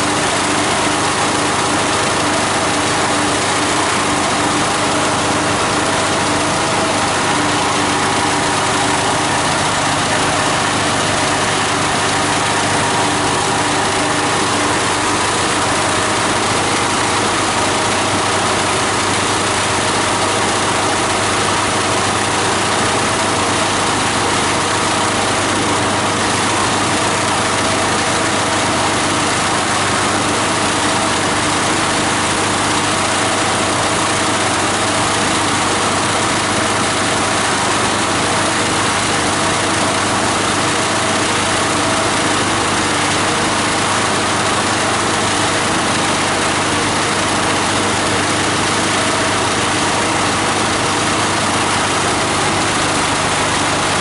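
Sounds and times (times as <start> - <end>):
diesel engine running grinder: 0.0 - 54.0.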